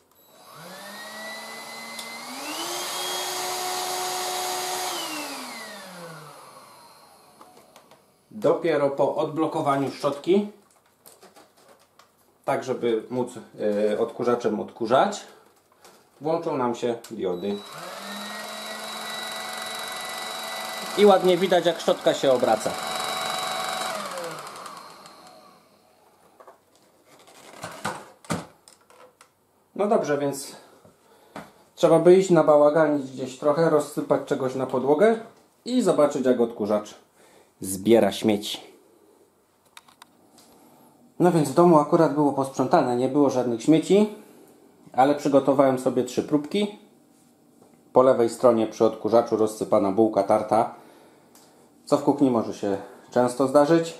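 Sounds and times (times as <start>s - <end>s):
vacuum cleaner motor whine: 0.2s - 7.8s, 17.4s - 26.0s.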